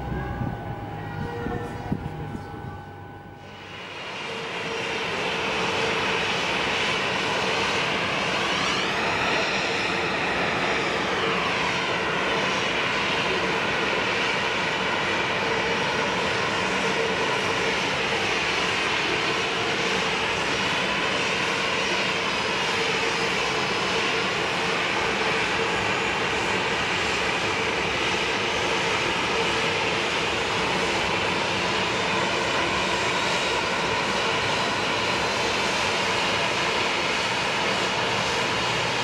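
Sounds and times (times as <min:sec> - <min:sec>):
high rising and falling tone: 0:00.0 - 0:03.8
jet engine whine: 0:00.0 - 0:39.0.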